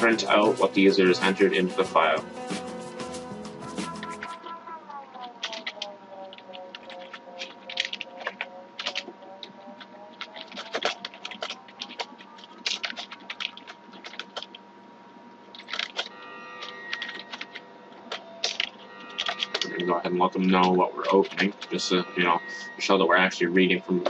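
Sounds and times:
faint steady hum: 3.5 - 24.0
keyboard typing: 3.6 - 14.6, 15.5 - 22.9.

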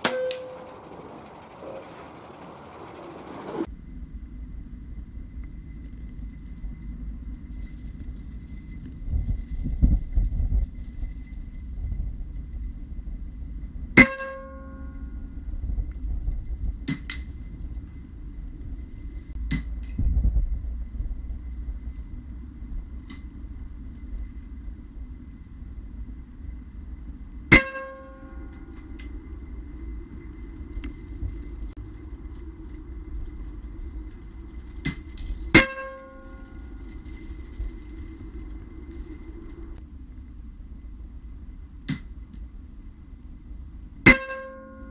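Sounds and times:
pellet ringing on steel target: 0.0 - 0.7, 14.0 - 14.9, 27.5 - 28.5, 34.9 - 36.4, 44.1 - 44.8
metallic ring of steel target: 0.0 - 2.2, 13.9 - 15.6, 27.4 - 39.8, 44.0 - 44.9
low background rumble: 0.0 - 44.9.

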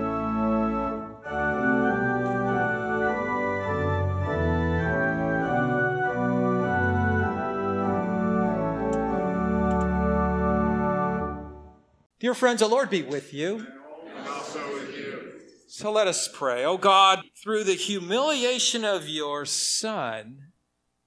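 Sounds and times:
organ playing a hymn: 0.0 - 11.8.

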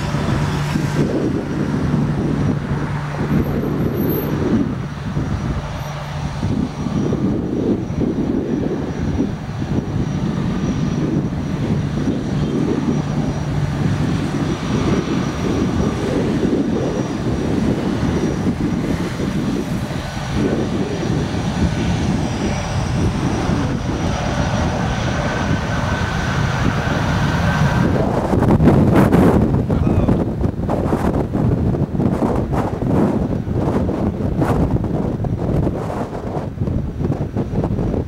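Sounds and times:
jet engine whine: 0.0 - 38.0
jet engines rumbling: 0.0 - 38.0.

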